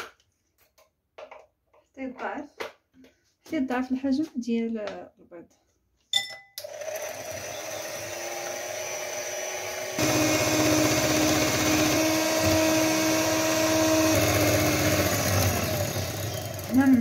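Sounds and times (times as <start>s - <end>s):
electric hand mixer whining: 6.6s - 17.0s.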